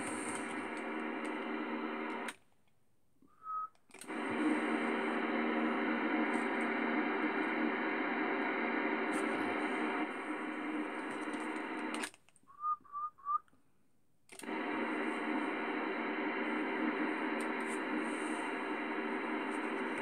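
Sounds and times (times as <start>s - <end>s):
radio static: 0.0s - 2.3s, 4.1s - 12.1s, 14.4s - 20.0s
steady radio tones: 0.0s - 2.3s, 4.1s - 12.1s, 14.4s - 20.0s.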